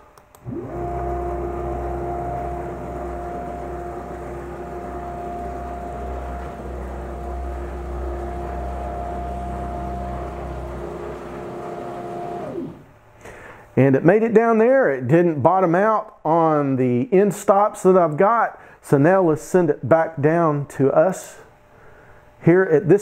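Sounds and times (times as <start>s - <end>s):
low hum: 0.1s - 13.0s
stepper motors whining: 0.4s - 13.0s.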